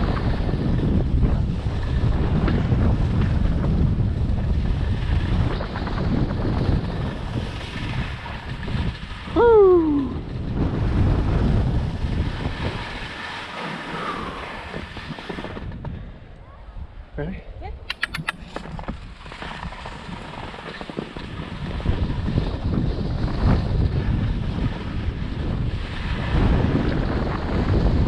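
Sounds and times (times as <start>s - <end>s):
wind rushing over microphone: 0.0s - 28.0s
person shouting: 9.4s - 10.2s.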